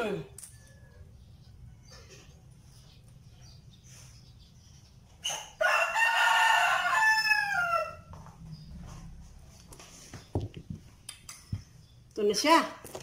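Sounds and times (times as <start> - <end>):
rooster crowing: 5.6 - 8.3.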